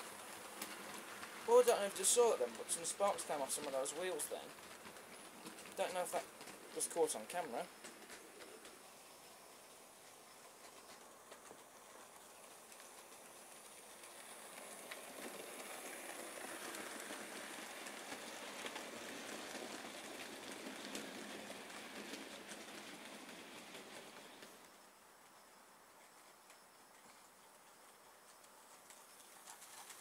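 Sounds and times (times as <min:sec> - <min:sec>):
model train wheels rattling: 0:00.0 - 0:24.8.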